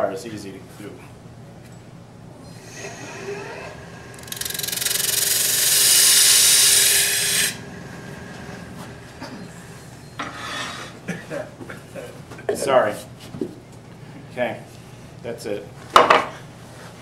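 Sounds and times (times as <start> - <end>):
wood lathe running: 2.6 - 9.7.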